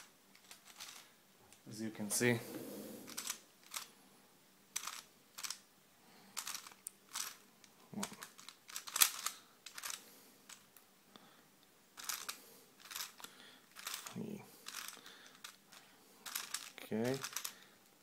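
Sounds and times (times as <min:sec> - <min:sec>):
plastic puzzle clicking: 0:00.0 - 0:01.0, 0:03.0 - 0:03.9, 0:04.8 - 0:05.6, 0:06.4 - 0:07.4, 0:08.0 - 0:10.6, 0:12.0 - 0:17.6.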